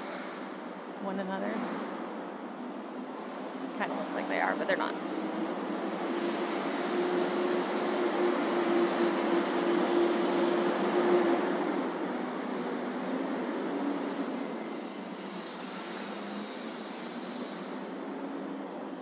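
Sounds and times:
mechanical hum with rushing noise: 0:00.0 - 0:19.0.

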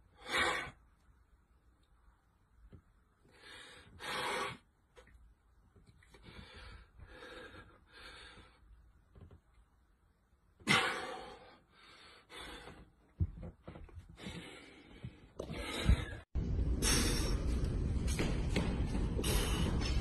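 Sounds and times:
man breathing hard: 0:03.3 - 0:04.7, 0:06.1 - 0:08.8, 0:10.7 - 0:13.0, 0:14.1 - 0:17.6, 0:19.2 - 0:20.0.

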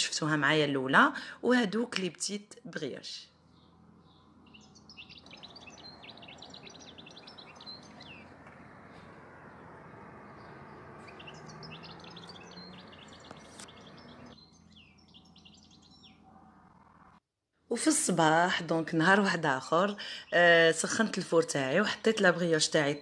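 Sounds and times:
small birds chirping: 0:03.1 - 0:17.2
faint rushing noise: 0:06.0 - 0:13.8.

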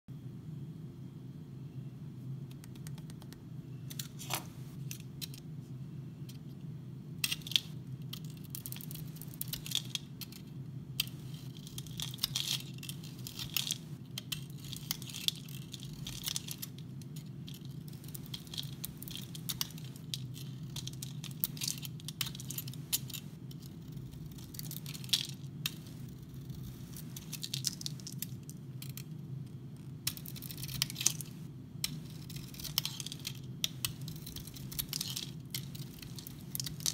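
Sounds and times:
steady low hum: 0:00.1 - 0:36.9
knife scraping soap: 0:31.8 - 0:36.9.

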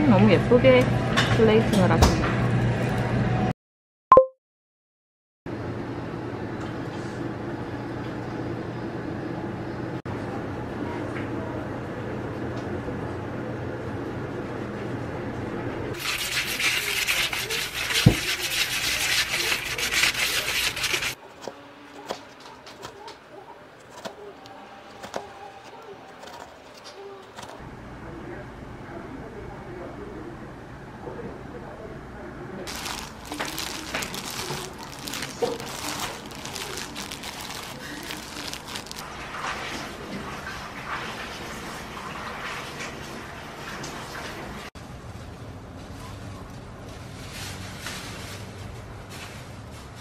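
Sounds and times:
gloved hands scrubbing lemons with salt: 0:16.0 - 0:21.2, 0:32.7 - 0:39.0
wet crackling and rustling: 0:16.0 - 0:21.2, 0:32.7 - 0:39.1.

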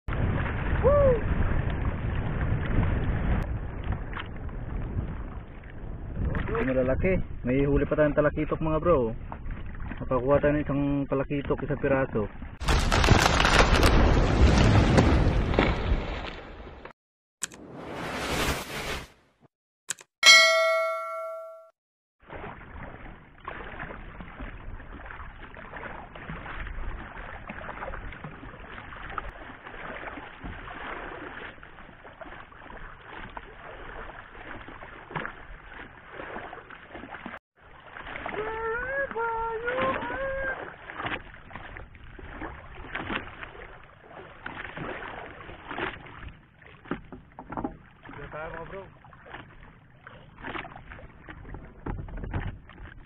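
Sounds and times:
wind and water noise: 0:00.1 - 0:16.9, 0:22.2 - 0:53.0
bright bell ding: 0:20.2 - 0:21.8.

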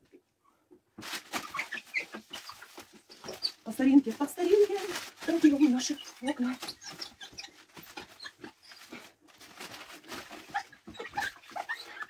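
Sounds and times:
newspaper rubbing on glass: 0:01.0 - 0:12.0
squeaks against glass: 0:01.4 - 0:03.7, 0:05.8 - 0:09.1, 0:10.4 - 0:12.0.

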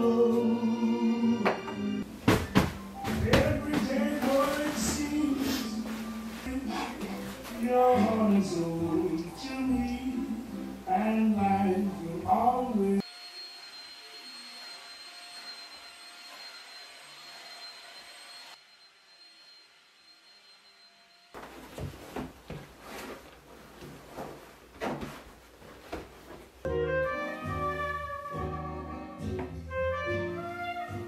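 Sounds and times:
cushions thumping and rustling: 0:02.1 - 0:06.5, 0:21.4 - 0:26.6
handheld vacuum cleaner whine: 0:13.0 - 0:21.3.

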